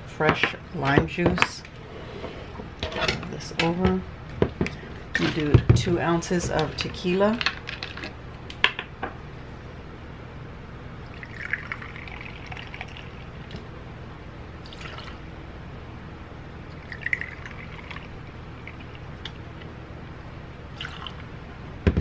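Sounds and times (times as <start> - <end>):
liquid pouring into glass: 11.0 - 13.7, 14.6 - 15.2, 16.7 - 19.2, 20.7 - 21.3.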